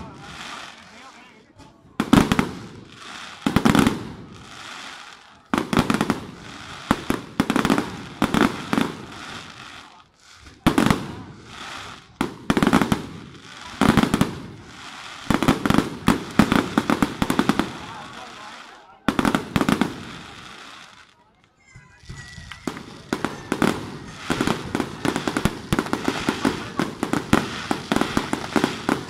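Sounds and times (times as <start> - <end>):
fireworks bangs: 0.0 - 21.1, 22.0 - 29.0
fireworks crackling: 0.0 - 29.0.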